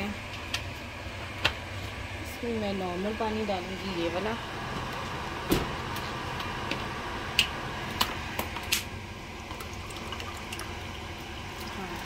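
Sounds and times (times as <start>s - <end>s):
water pouring into a glass: 9.5s - 12.0s.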